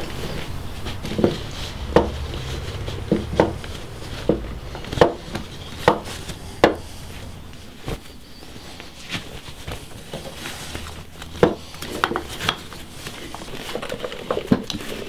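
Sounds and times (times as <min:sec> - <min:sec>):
hard wooden knocks: 0:00.8 - 0:07.1, 0:11.3 - 0:12.7.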